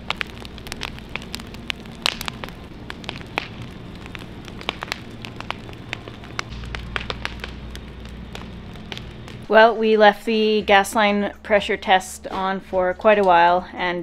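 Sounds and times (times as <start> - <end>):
bonfire crackling and popping: 0.0 - 11.2.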